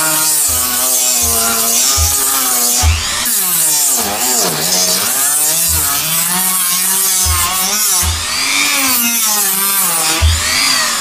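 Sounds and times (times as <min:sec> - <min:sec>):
rotary tool sanding plastic: 0:00.0 - 0:11.0.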